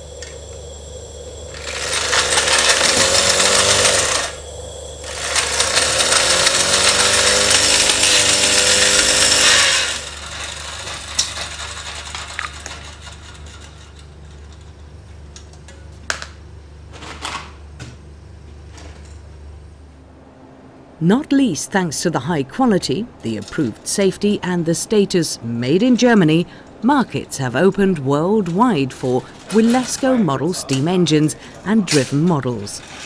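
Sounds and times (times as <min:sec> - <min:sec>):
model steam engine air hissing: 0:00.0 - 0:13.5.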